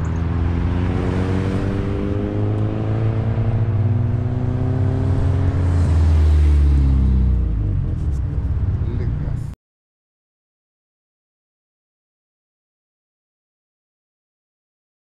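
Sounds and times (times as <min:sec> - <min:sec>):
car engine accelerating: 0:00.0 - 0:09.6.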